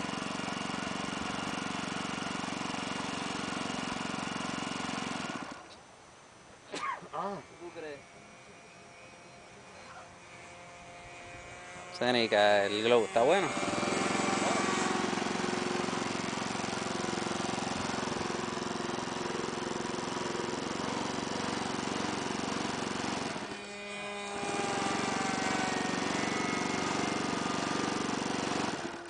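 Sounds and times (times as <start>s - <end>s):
electric starter whirring: 0.0s - 5.8s, 7.2s - 29.0s.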